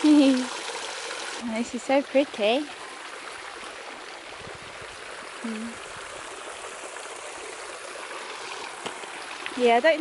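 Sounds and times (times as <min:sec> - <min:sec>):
fountain splashing into pool: 0:00.0 - 0:02.7, 0:05.2 - 0:10.0.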